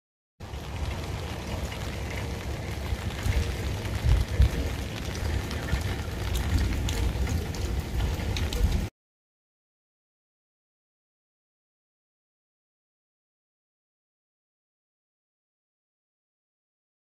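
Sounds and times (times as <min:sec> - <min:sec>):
low rumble: 0:00.4 - 0:08.9
steady outdoor hiss: 0:00.4 - 0:08.9
wind buffeting microphone: 0:00.5 - 0:08.9.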